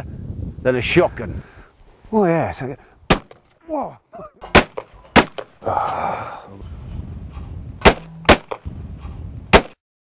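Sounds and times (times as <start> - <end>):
shotgun firing: 3.1 - 3.4, 4.5 - 5.6, 7.8 - 8.7, 9.5 - 9.8.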